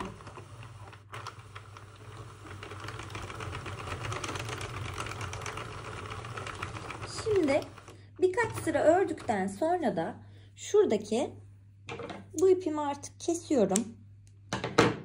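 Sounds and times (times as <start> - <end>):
knitting machine clicking: 0.0 - 9.5.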